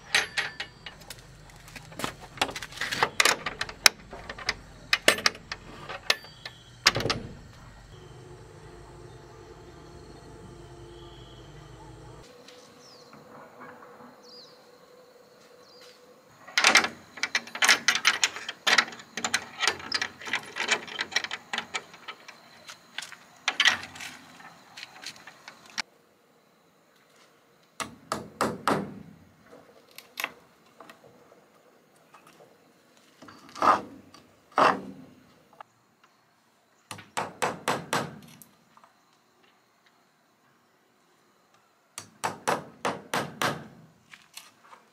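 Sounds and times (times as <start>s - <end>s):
hammer striking wood: 27.8s - 29.0s, 42.0s - 43.7s.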